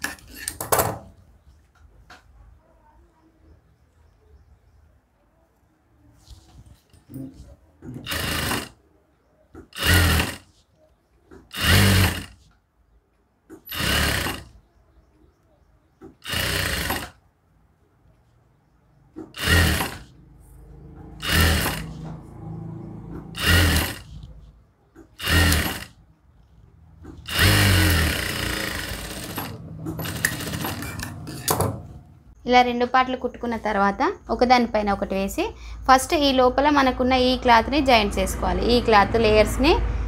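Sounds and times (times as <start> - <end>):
sewing machine stitching: 7.2 - 8.8, 9.6 - 10.6, 11.3 - 12.5, 13.5 - 14.6, 16.0 - 17.2, 19.2 - 32.0.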